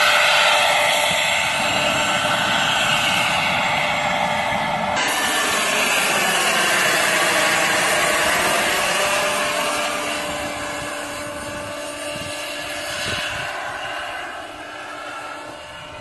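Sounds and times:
model helicopter rotor whine: 0.0s - 16.0s.

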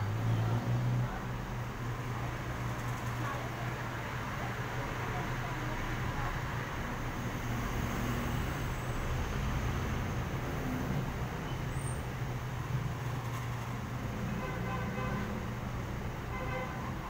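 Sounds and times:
vehicles driving past: 0.0s - 17.0s.

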